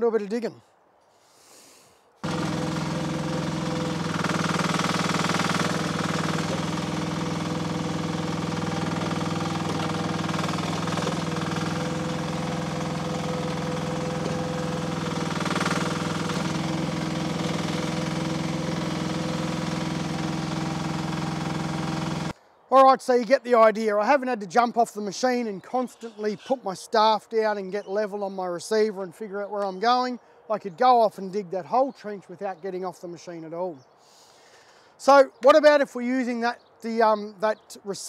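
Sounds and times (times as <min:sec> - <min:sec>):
excavator engine running: 0:02.2 - 0:22.4.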